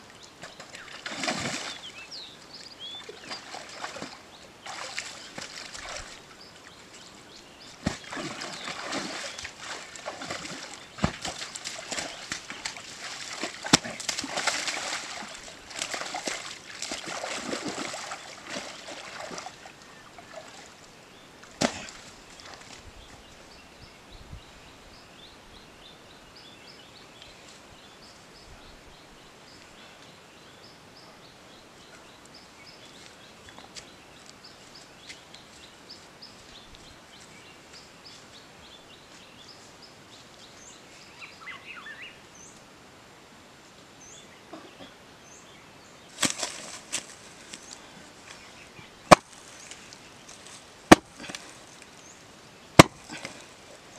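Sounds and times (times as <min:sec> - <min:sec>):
small birds chirping faintly: 0:00.0 - 0:53.9
hands splashing in muddy water: 0:00.5 - 0:01.9, 0:03.1 - 0:06.2, 0:07.8 - 0:19.7, 0:52.8 - 0:53.8.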